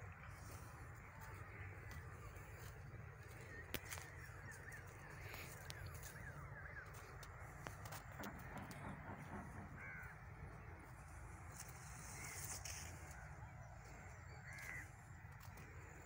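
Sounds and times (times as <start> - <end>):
faint outdoor background: 0.0 - 16.0.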